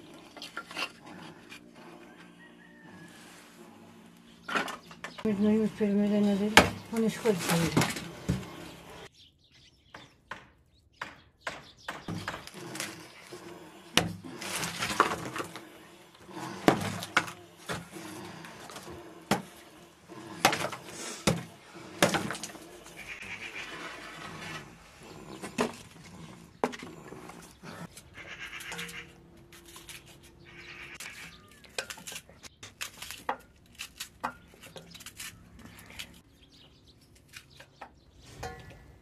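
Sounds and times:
hatchet chopping: 10.0s - 13.0s, 16.4s - 19.6s, 20.4s - 22.6s.

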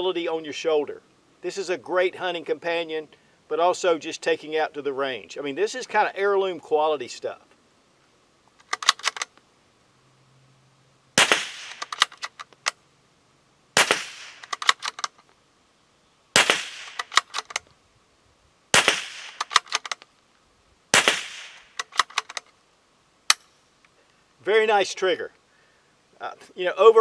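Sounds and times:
rifle bolt clicks: 8.6s - 9.4s, 11.3s - 12.8s, 13.8s - 15.3s, 16.5s - 17.7s, 18.8s - 20.1s, 21.0s - 22.5s
rifle bolt rattling: 8.6s - 9.4s, 11.6s - 12.8s, 13.9s - 15.3s, 16.5s - 17.7s, 18.9s - 20.1s, 21.5s - 22.6s
rifle shots: 11.2s - 12.3s, 13.8s - 15.1s, 16.4s - 17.6s, 18.7s - 20.0s, 20.9s - 22.3s.

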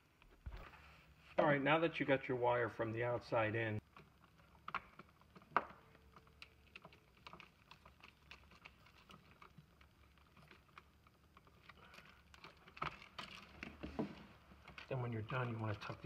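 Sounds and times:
small clicks of wires and plastic: 3.8s - 16.0s.

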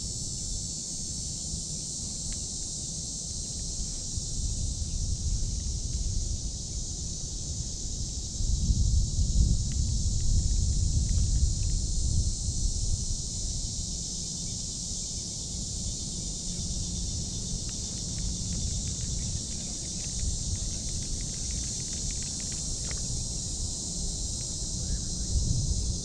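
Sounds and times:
insect chorus: 0.0s - 26.0s
wind rumble on microphone: 3.3s - 26.0s
faint clicks: 17.7s - 23.1s.

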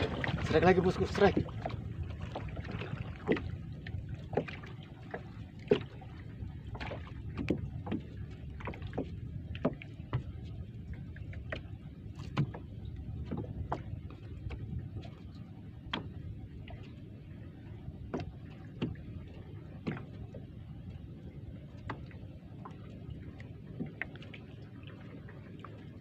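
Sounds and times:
water washing against hull: 0.0s - 26.0s
knocks and clicks on wooden canoe: 1.3s - 6.0s, 6.7s - 10.4s, 11.2s - 15.2s, 15.8s - 16.8s, 18.0s - 20.5s.

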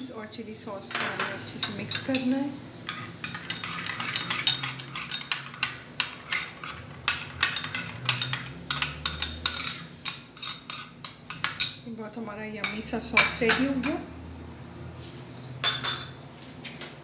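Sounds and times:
metal spoon stirring in a bowl: 0.8s - 11.9s, 12.6s - 14.0s.

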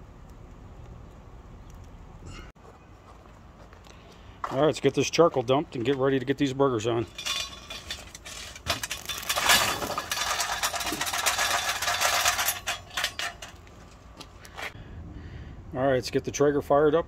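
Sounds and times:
charcoal briquettes clattering on metal: 6.8s - 14.0s.

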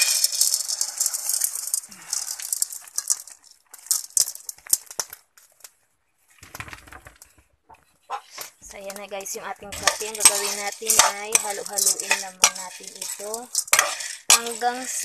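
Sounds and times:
coffee beans rattling in metal wok: 0.0s - 5.2s, 8.7s - 15.0s.

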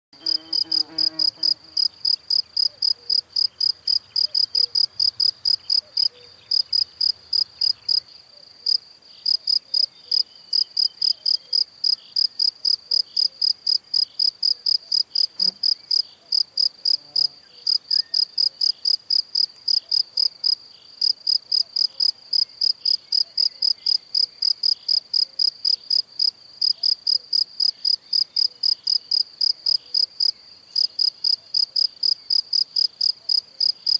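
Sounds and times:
insect chirping: 0.2s - 33.9s.

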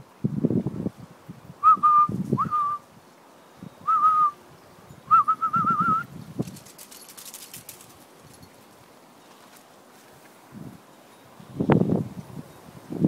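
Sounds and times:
person whistling: 1.6s - 2.8s, 3.9s - 4.4s, 5.1s - 6.1s.

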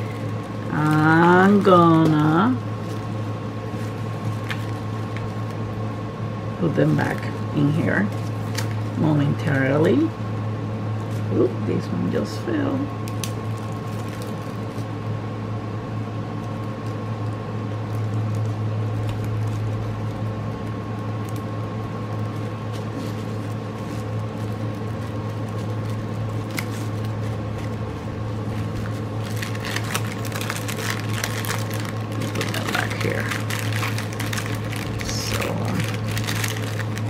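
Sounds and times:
plastic bags crinkling: 0.0s - 5.6s, 13.0s - 15.0s, 16.4s - 37.0s
steady low hum: 0.0s - 37.0s.

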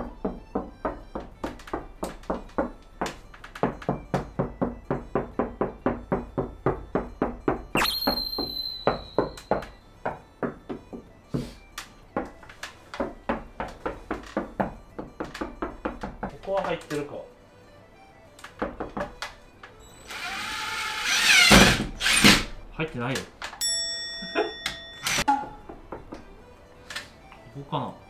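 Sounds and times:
knuckles knocking on wall: 0.0s - 7.7s, 9.5s - 11.1s, 18.6s - 19.2s.

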